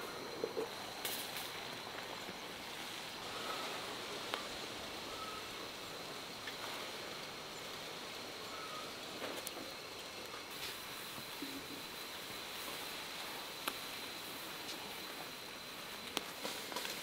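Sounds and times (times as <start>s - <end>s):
pot of water hissing: 0.0s - 17.0s
faint bird chirps: 5.0s - 6.2s, 8.4s - 9.0s.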